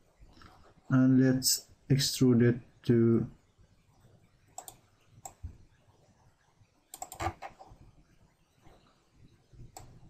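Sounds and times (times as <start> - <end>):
computer mouse clicking: 4.6 - 5.4, 6.9 - 7.7, 9.7 - 10.0.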